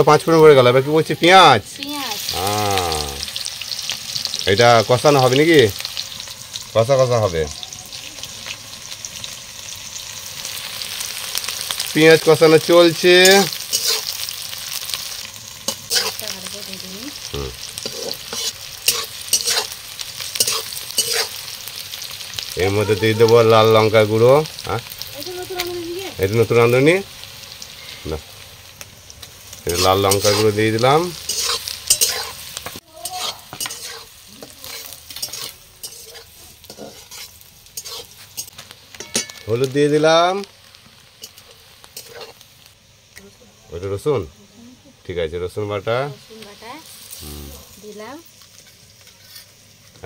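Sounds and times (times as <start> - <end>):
onions sizzling in hot oil: 0.0 - 50.0
spatula scraping pan: 13.2 - 14.2, 15.7 - 16.6, 17.7 - 21.5, 29.7 - 39.5, 41.2 - 42.4, 48.6 - 50.0.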